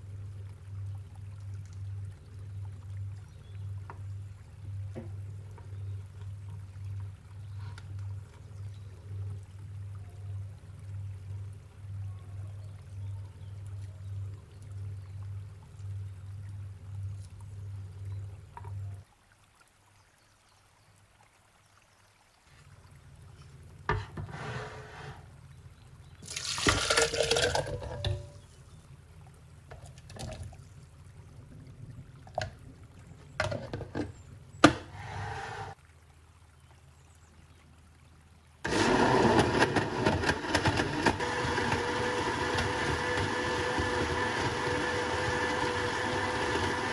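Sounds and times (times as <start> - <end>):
liquid splashing into blender jug: 26.2 - 28.3.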